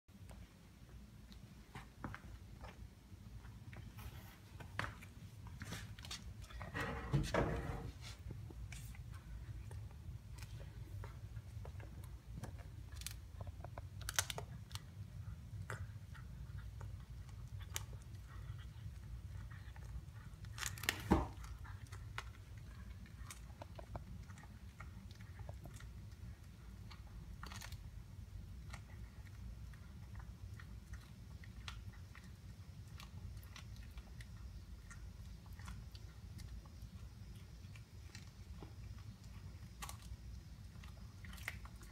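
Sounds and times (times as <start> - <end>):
low steady rumble: 0.1 - 41.9
teeth cracking bone: 9.1 - 41.9.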